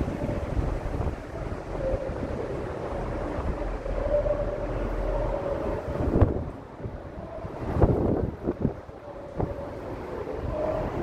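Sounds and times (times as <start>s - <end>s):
wind buffeting microphone: 0.0s - 11.0s
faint wavering tone: 1.3s - 7.8s.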